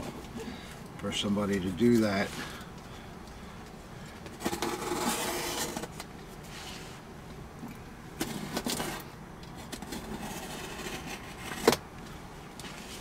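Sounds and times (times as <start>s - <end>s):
knife slitting packing tape: 4.4s - 5.9s.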